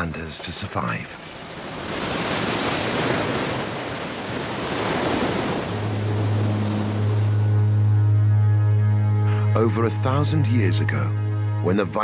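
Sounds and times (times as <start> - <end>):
rough sea surf rushing: 1.0 - 7.8
low steady tone: 5.7 - 12.0.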